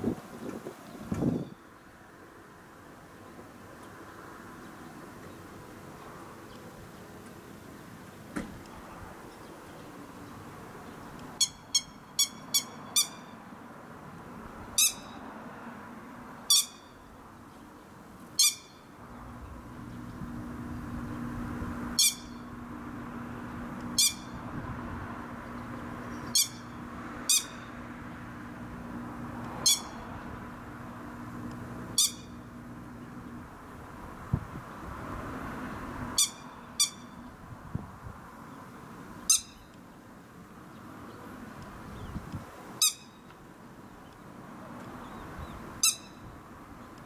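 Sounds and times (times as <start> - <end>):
lapwing shrill calls: 11.4 - 13.3, 14.8 - 15.2, 16.5 - 17.0, 18.4 - 18.9, 22.0 - 22.4, 24.0 - 24.4, 26.1 - 27.7, 29.6 - 30.0, 32.0 - 32.4, 36.2 - 37.2, 39.3 - 39.7, 42.8 - 43.2, 45.8 - 46.2.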